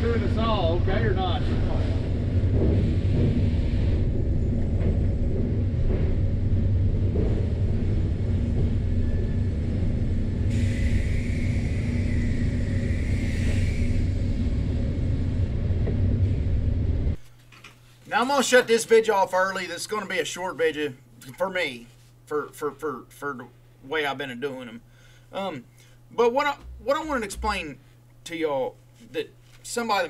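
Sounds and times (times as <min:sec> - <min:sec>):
muffled machinery rumble: 0:00.0 - 0:17.2, 0:26.4 - 0:27.9
high hiss: 0:10.5 - 0:14.9.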